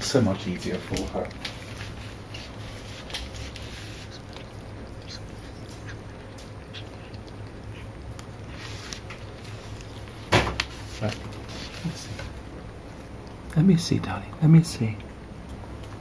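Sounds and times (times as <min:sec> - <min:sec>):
cat licking kitten: 0:00.0 - 0:16.0
kitten squeaking: 0:03.8 - 0:07.9.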